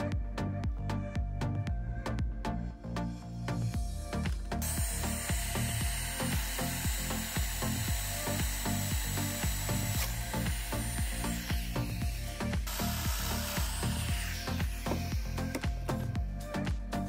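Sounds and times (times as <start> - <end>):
background music with steady beat: 0.0 - 17.0
power joiner motor whining: 3.7 - 16.3.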